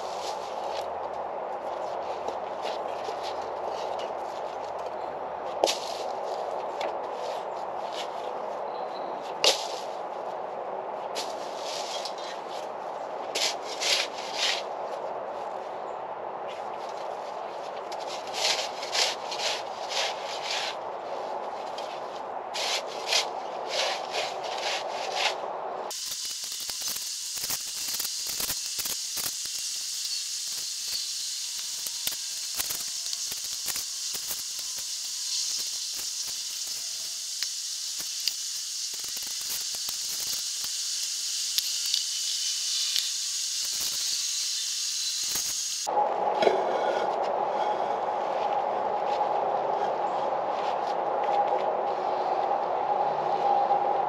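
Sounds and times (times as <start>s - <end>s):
steady high hiss: 0.0s - 1.6s, 17.0s - 46.3s
hand tool scraping gravel: 11.2s - 12.5s, 13.3s - 14.7s, 17.9s - 20.8s, 22.6s - 29.0s.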